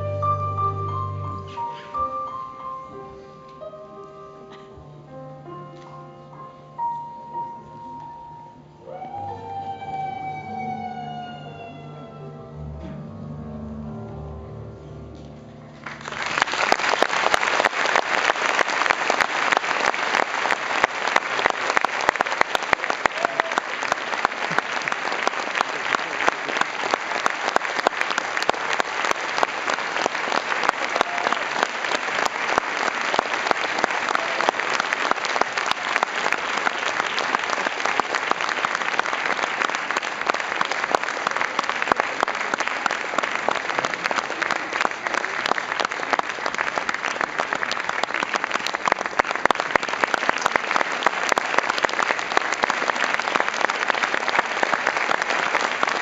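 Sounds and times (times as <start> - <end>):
large audience applauding: 15.8 - 56.0.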